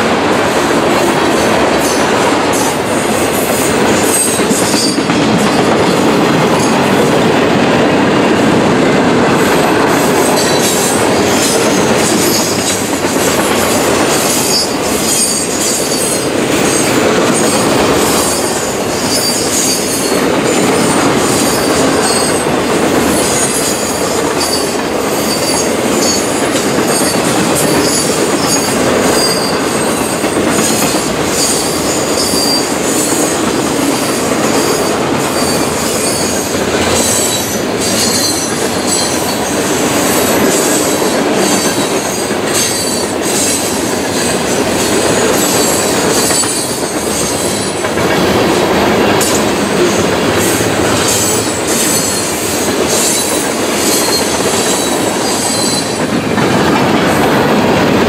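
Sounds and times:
clacks over rail joints: 0.0 - 58.0
train wheels rumbling on rail: 0.0 - 58.0
high-pitched wheel squeals: 26.9 - 33.1, 34.6 - 39.6, 49.2 - 56.0.

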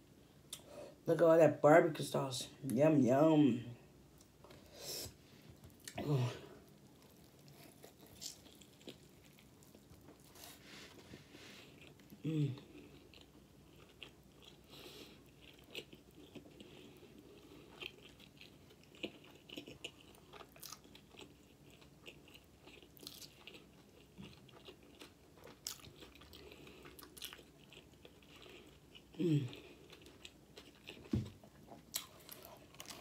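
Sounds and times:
person chewing with mouth clicks: 11.7 - 33.0.

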